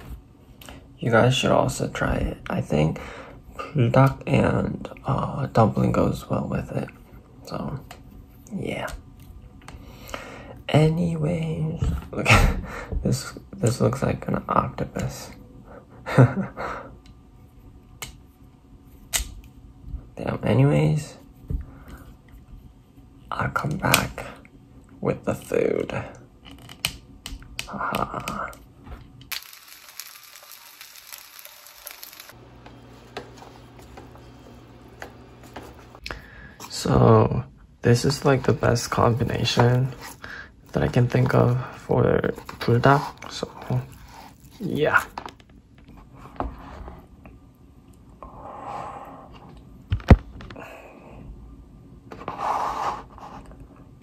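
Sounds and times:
low steady hum: 0.0 - 54.0
dumplings sizzling in a pan: 29.3 - 32.4.

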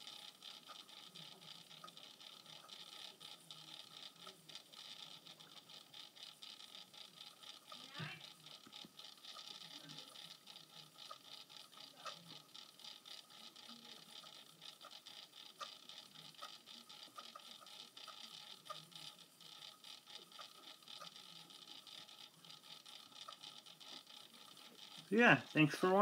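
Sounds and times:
faint ticks: 0.0 - 26.0
faint steady hiss: 25.0 - 26.0.

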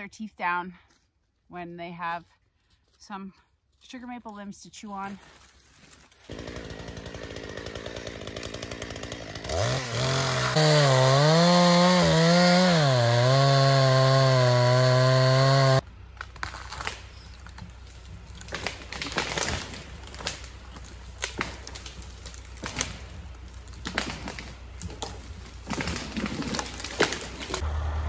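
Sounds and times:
chainsaw cutting wood: 6.3 - 15.8, 18.3 - 27.7.

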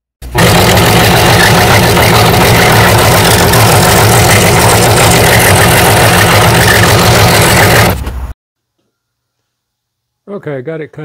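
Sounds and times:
scroll saw cutting wood: 0.2 - 8.2.

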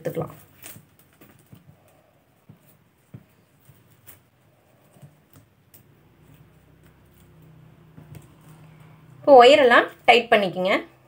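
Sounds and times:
plastic wire clicks and rustles: 0.1 - 8.7.

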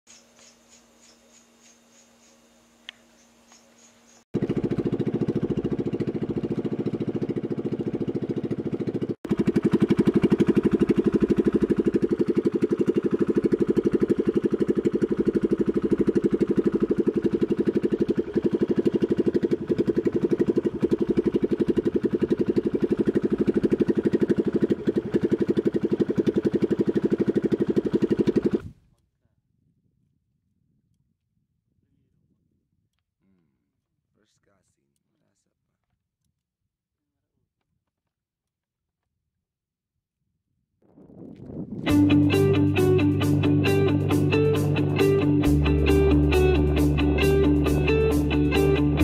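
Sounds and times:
motor boat engine running: 4.4 - 28.7.

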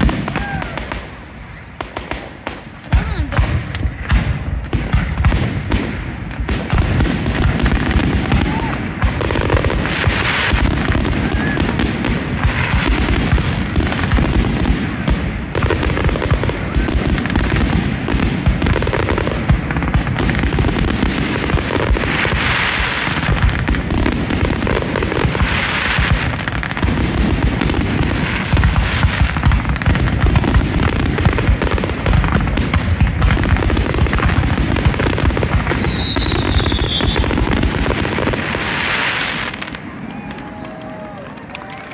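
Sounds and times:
fireworks bursting and crackling: 0.0 - 41.9
falling firework whistle: 8.1 - 8.8, 35.7 - 37.8.

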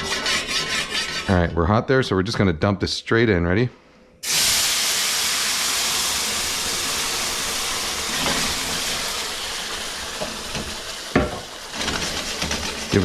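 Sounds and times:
salsa sizzling in a hot pan: 4.2 - 12.2.

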